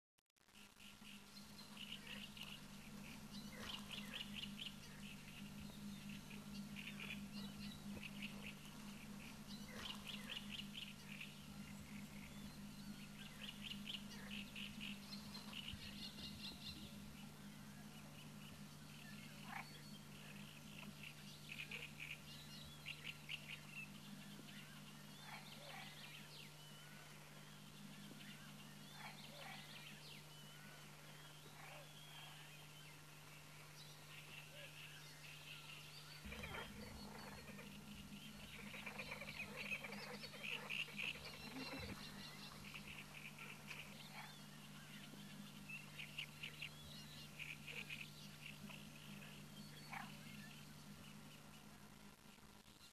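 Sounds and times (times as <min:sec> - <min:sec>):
steady low hum: 0:00.5 - 0:52.9
geese honking and cackling: 0:36.2 - 0:44.3.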